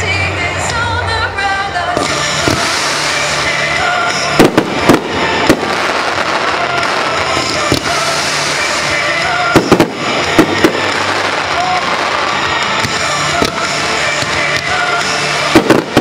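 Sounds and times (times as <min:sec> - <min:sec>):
music: 0:00.0 - 0:16.0
fireworks hissing and crackling: 0:01.9 - 0:16.0.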